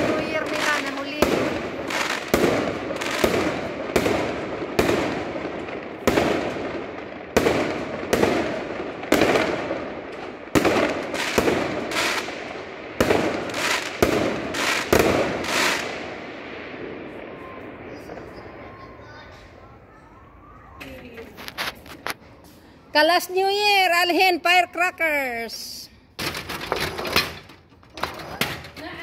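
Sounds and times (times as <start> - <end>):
fireworks bangs: 0.0 - 22.4.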